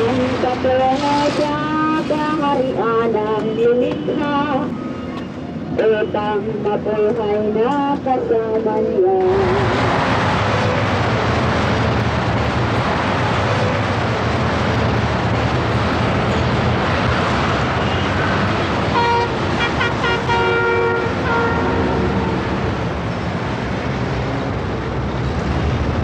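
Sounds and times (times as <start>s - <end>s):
heavy highway traffic: 0.0s - 26.0s
vehicle horns honking: 18.9s - 22.8s.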